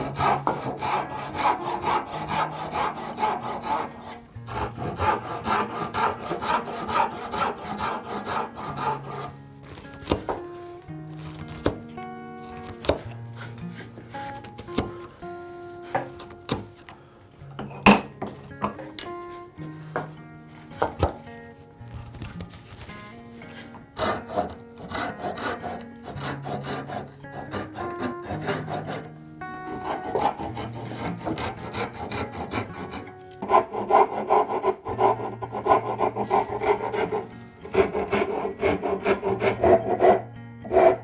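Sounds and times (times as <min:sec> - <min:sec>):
backsaw cutting wood: 0:00.0 - 0:09.4, 0:23.5 - 0:41.0
file rasping on wood: 0:00.0 - 0:09.4, 0:23.5 - 0:41.0.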